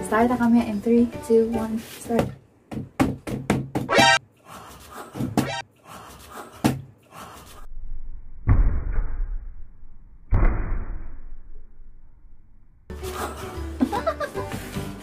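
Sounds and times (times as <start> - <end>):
hands slapping tabletop: 2.2 - 3.9.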